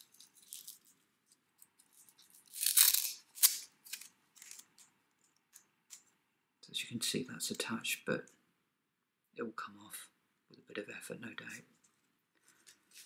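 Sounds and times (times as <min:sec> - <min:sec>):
velcro strap scratching: 0:01.7 - 0:04.9, 0:12.6 - 0:13.0
velcro rasp: 0:02.2 - 0:04.6.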